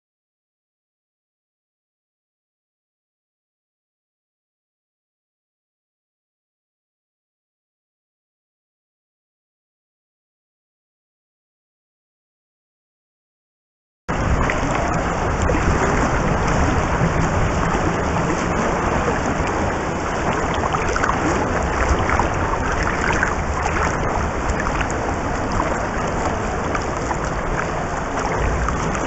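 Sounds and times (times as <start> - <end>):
bubbles crackling: 14.1 - 29.0
muffled underwater water rush: 14.1 - 29.0.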